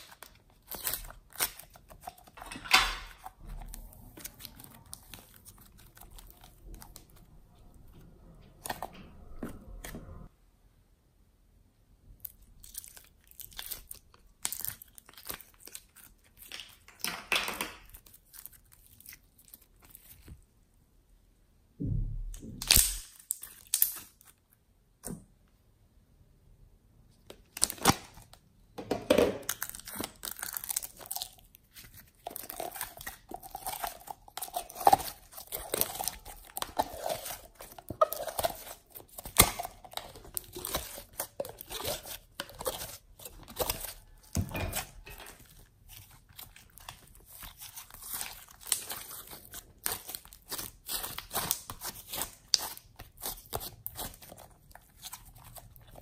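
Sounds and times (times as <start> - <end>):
slime crackling and popping: 0.0 - 7.3, 12.2 - 20.3, 22.4 - 24.4, 29.4 - 44.4, 45.0 - 56.0.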